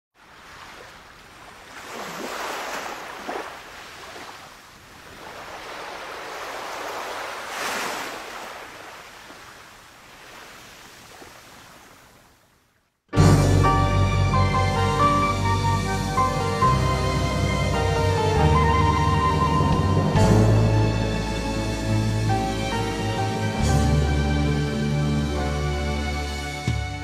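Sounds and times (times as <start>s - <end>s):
sea waves breaking on shore: 0.2s - 12.9s.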